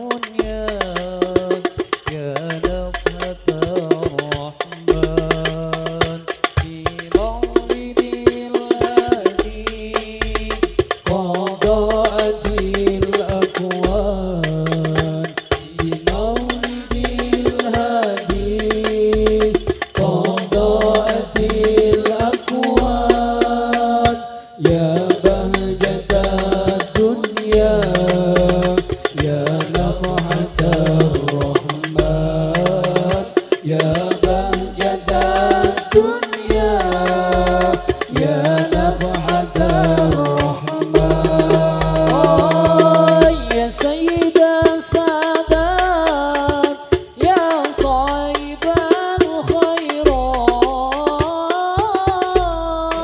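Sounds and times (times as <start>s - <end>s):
frame drum strikes and jingles: 0.0s - 53.0s
person singing melody: 20.0s - 53.0s.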